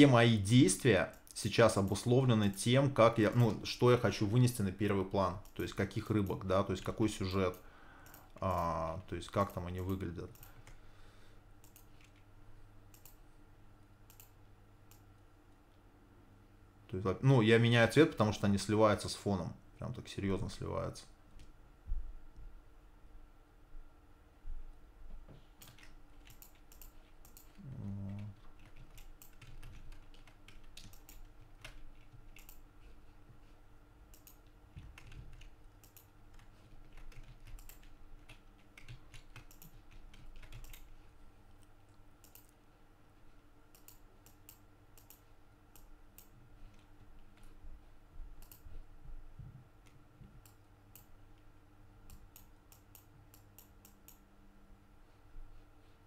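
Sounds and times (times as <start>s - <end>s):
faint electrical hum: 0.0s - 56.0s
mouse and keyboard clicks: 12.9s - 13.2s, 14.1s - 15.0s, 25.6s - 27.6s, 28.8s - 32.6s, 48.4s - 48.6s.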